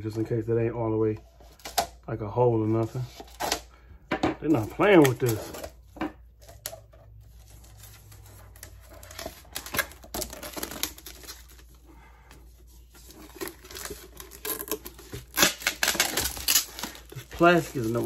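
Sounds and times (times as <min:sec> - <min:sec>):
plastic wrap crinkling and tearing: 0:04.5 - 0:05.8, 0:06.5 - 0:11.9, 0:12.9 - 0:18.0.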